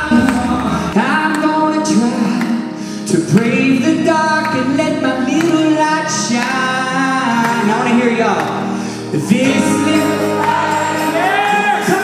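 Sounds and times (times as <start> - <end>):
instrumental backing: 0.0 - 12.0
voices singing gospel song: 9.1 - 12.0.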